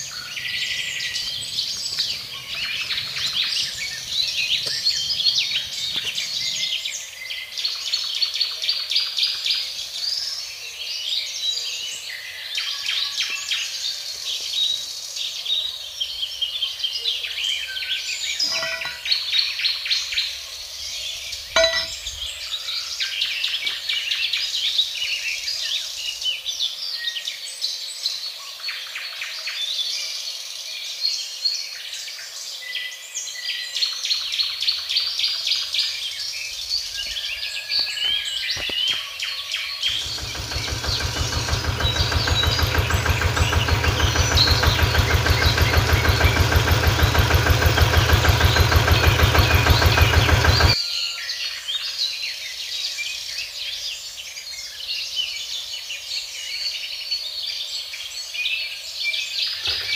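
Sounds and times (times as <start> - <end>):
birds chirping: 0.0 - 7.2, 18.2 - 19.4, 21.0 - 22.4, 39.7 - 50.8.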